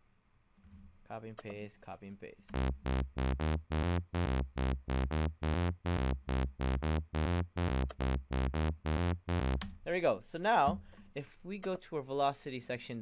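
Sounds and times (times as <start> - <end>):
wobble bass synth: 2.5 - 9.6.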